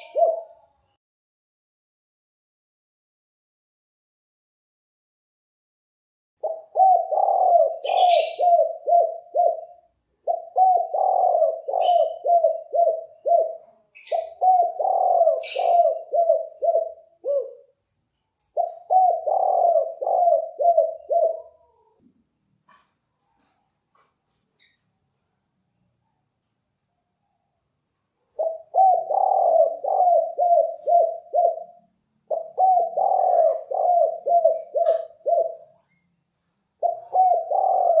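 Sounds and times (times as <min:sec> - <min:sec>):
dove cooing: 0:00.0 - 0:00.8, 0:06.4 - 0:17.8, 0:18.4 - 0:22.1, 0:28.4 - 0:36.0, 0:36.8 - 0:38.0
small bird chirping: 0:00.0 - 0:01.0, 0:06.8 - 0:08.6, 0:13.9 - 0:16.1, 0:17.2 - 0:19.8.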